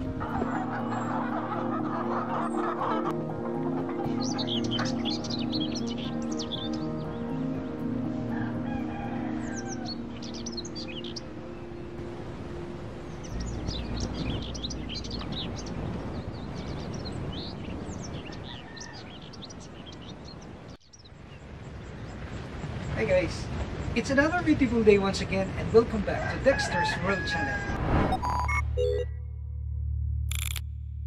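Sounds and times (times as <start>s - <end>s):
background music: 0.0s - 19.2s
farmyard fowl sounds: 0.2s - 5.2s, 8.3s - 10.0s, 26.1s - 27.8s
small birds chirping: 3.8s - 8.0s, 9.2s - 12.0s, 13.0s - 26.1s
rooster crowing: 8.3s - 10.1s, 18.3s - 19.4s, 26.2s - 27.8s.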